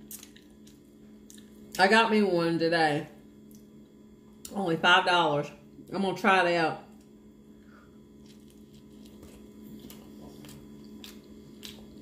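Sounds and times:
person chewing food: 0.0 - 1.8, 7.0 - 12.0.

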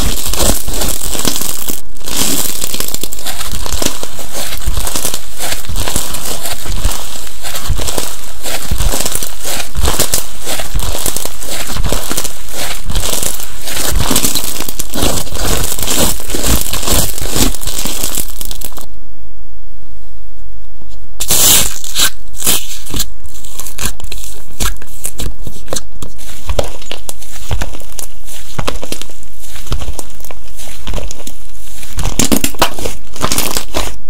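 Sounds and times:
crunchy slime crackling: 0.0 - 18.9, 21.2 - 34.0.

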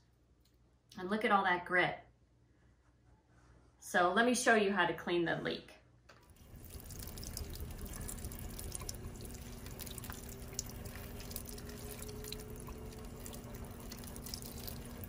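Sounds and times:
tap water running into sink: 6.2 - 15.0.

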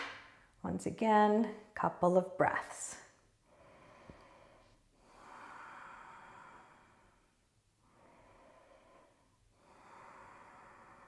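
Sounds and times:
woman breathing deeply: 3.3 - 11.0.

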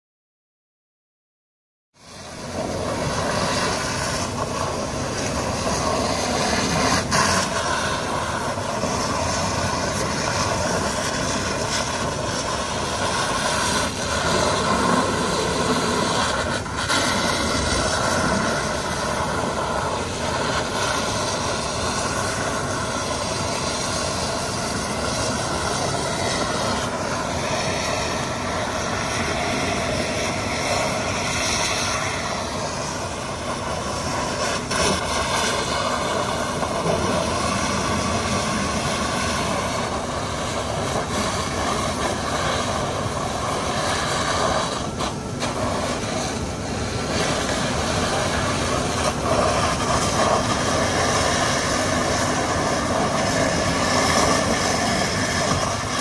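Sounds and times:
high-pressure water stream roaring: 2.0 - 56.0
truck engine and pump running: 2.0 - 56.0.

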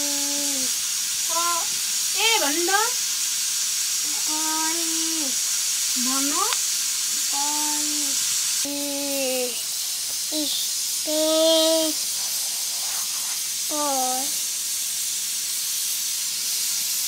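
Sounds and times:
steady high hiss: 0.0 - 17.0.

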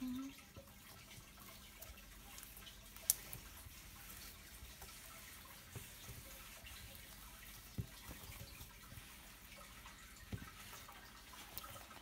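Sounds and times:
slime crackling and clicking: 2.3 - 3.4.

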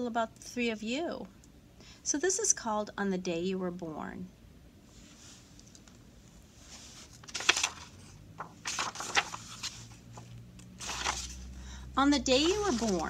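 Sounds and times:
book pages rustling and flapping: 6.6 - 11.5, 12.3 - 13.0.

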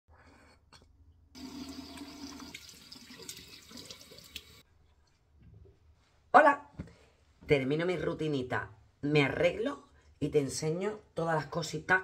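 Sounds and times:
sink tap running: 1.4 - 4.6
water splashing face rinsing: 1.4 - 4.6.

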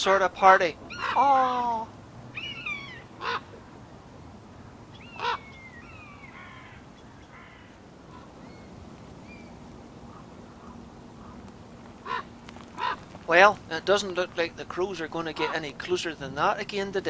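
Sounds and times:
buzzards mewing calls: 0.4 - 3.7, 4.5 - 8.7, 10.0 - 16.4
crows cawing: 2.4 - 3.6, 4.6 - 8.4, 10.0 - 13.3.

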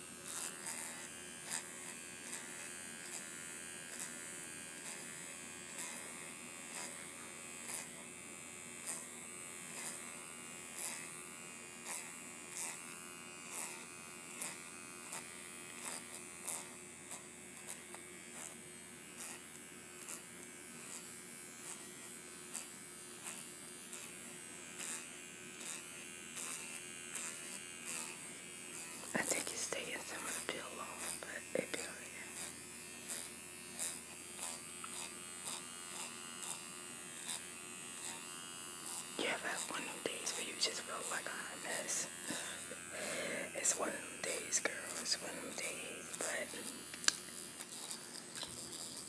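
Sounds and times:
vibrating facial roller buzzing: 0.0 - 49.0.

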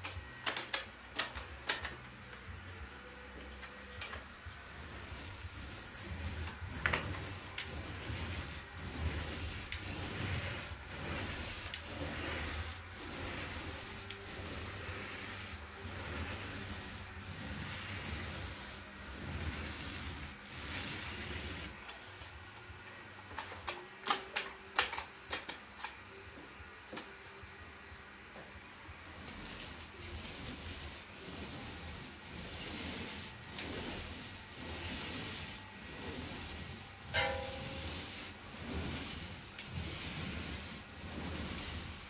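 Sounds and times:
paint roller swishing on ceiling: 0.0 - 42.0.

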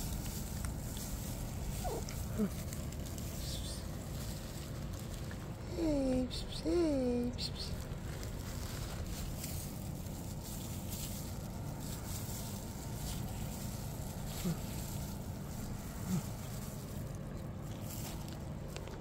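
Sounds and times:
rustling: 0.0 - 6.2, 7.5 - 19.0
cats chewing food: 0.0 - 6.6, 7.4 - 19.0
low background rumble: 0.0 - 19.0.

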